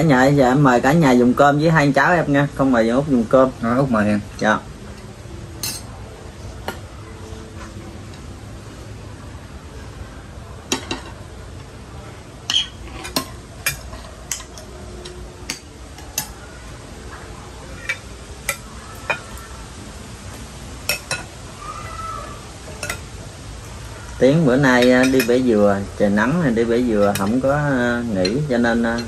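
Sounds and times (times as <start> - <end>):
utensils clinking against dishes: 4.3 - 6.0, 10.7 - 11.2, 12.5 - 16.4, 17.7 - 19.4, 20.8 - 21.4, 22.7 - 23.1, 24.6 - 25.6, 26.2 - 29.0.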